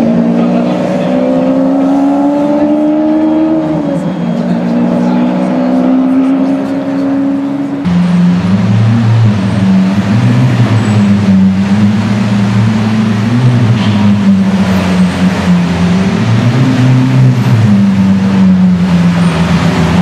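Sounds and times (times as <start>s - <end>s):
car engine idling with echo: 6.2s - 20.0s.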